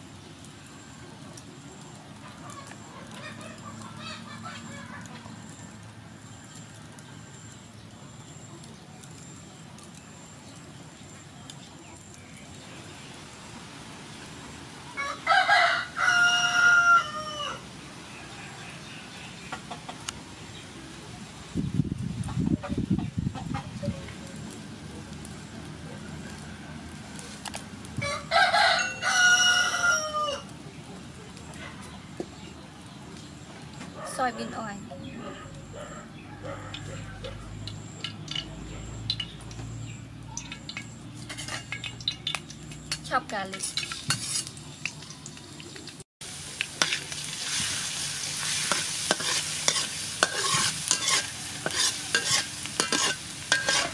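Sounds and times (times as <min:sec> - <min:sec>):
low outdoor background: 0:00.0 - 0:53.9
rooster crowing: 0:14.9 - 0:17.7, 0:28.0 - 0:30.5, 0:34.4 - 0:37.7.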